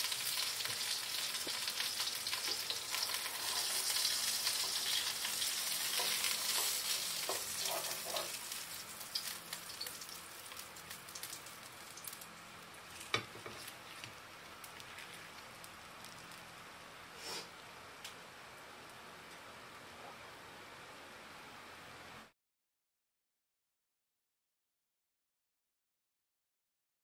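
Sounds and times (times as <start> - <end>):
fish sizzling in a pan: 0.0 - 17.5.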